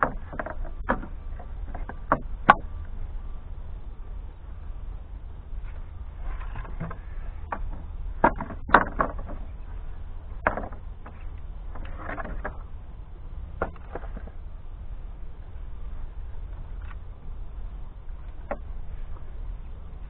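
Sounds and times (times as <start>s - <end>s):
steady low rumble: 0.0s - 20.0s
firewood knocking together: 6.7s - 9.4s.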